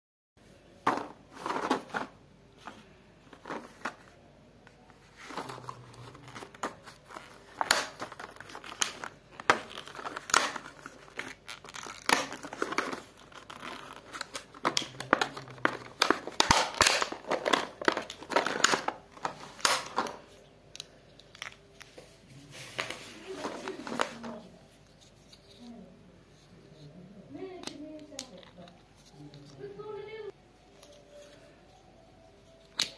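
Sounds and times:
plastic packaging crinkling: 5.2s - 20.3s
plastic pieces clicking: 6.5s - 19.0s.

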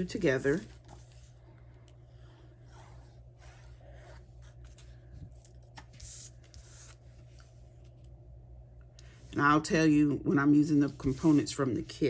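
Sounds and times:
paper rustling and scraping: 0.0s - 1.4s, 2.7s - 7.3s, 10.8s - 12.0s.

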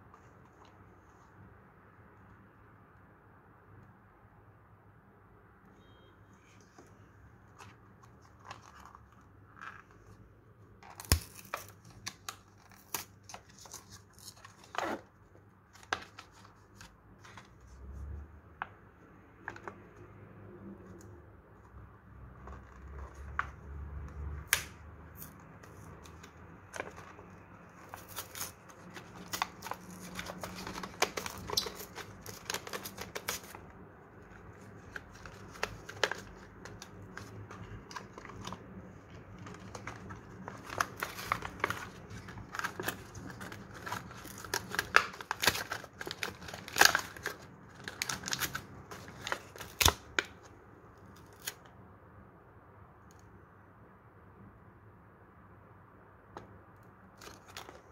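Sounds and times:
card tearing: 10.8s - 15.1s, 24.5s - 33.6s, 34.4s - 50.4s
plastic blister pack crackling: 24.5s - 33.6s, 34.3s - 50.3s.

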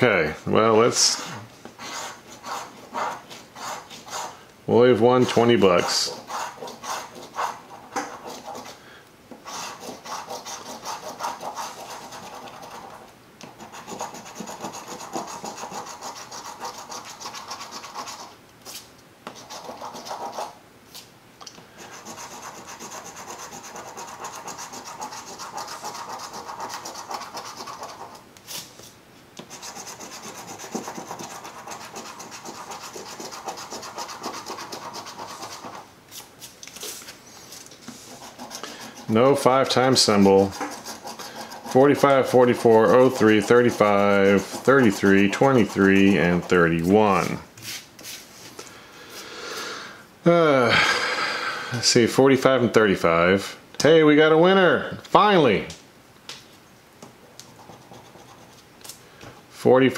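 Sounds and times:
coin scraping scratch card: 1.8s - 4.4s, 5.2s - 8.8s, 9.4s - 18.8s, 19.4s - 20.6s, 21.8s - 28.6s, 29.5s - 35.8s, 38.1s - 47.4s, 57.4s - 58.6s.

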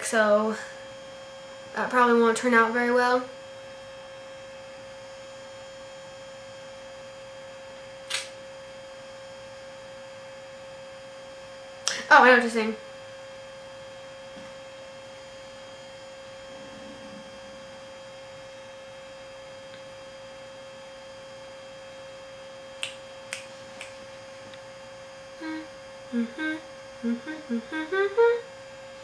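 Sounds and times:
electrical hum: 0.0s - 29.0s.

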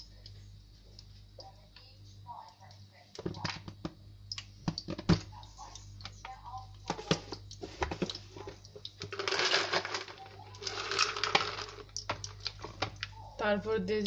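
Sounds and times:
chillies crackling in hot oil: 7.0s - 14.0s.

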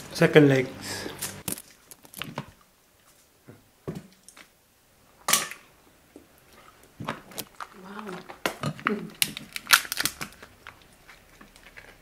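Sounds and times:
crab shell cracking: 7.3s - 12.0s.

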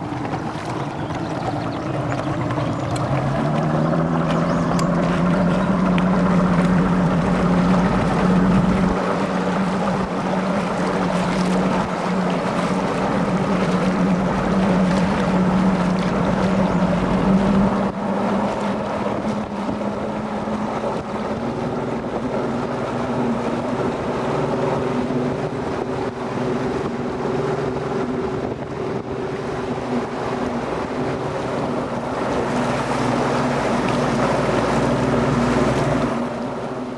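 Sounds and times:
outboard motor running: 0.0s - 36.9s
wind buffeting microphone: 0.0s - 36.9s.

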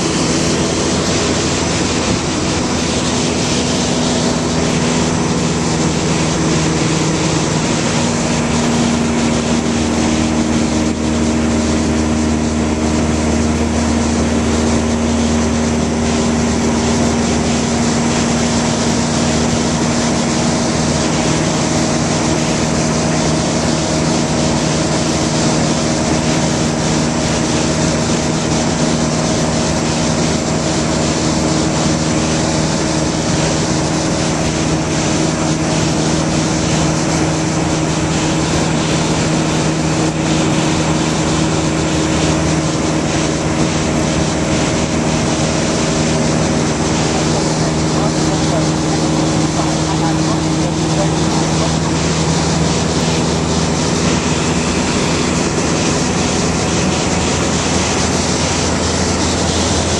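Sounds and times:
aircraft engine drone in cabin: 0.0s - 59.9s.

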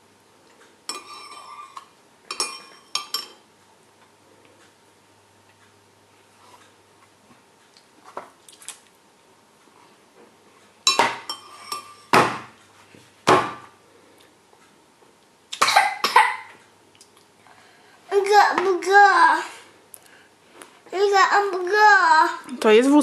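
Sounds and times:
metal spoon clinking on bowl: 2.3s - 3.4s.

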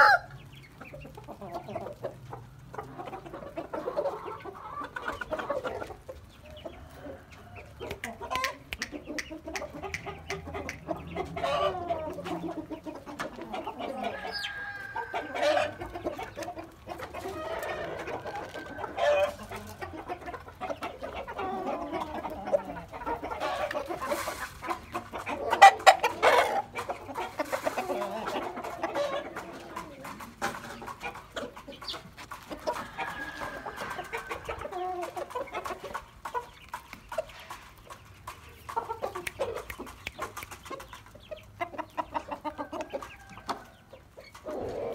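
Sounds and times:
rooster crowing: 0.0s - 0.3s, 14.0s - 15.8s, 32.8s - 34.6s
roosters clucking: 0.0s - 44.9s.

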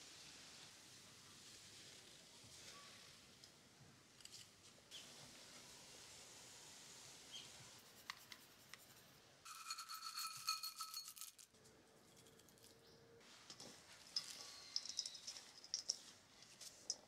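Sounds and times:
seasonings clattering into metal bowl: 9.5s - 11.5s, 14.1s - 17.0s.

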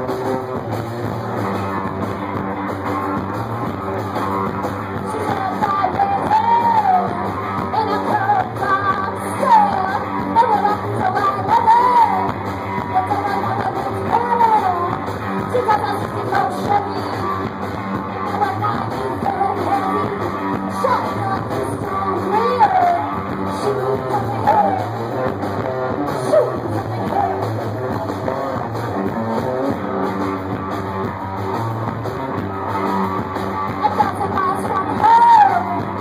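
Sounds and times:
electric guitar: 0.0s - 36.0s.

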